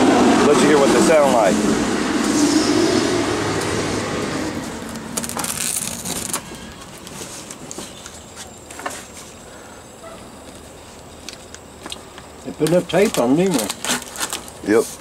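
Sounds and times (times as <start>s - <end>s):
knife slitting plastic and tape: 4.8s - 7.7s, 13.0s - 14.7s.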